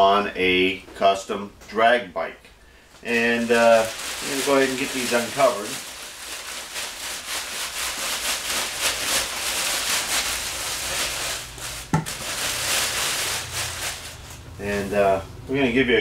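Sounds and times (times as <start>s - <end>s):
plastic sheeting crinkling: 3.0s - 15.2s.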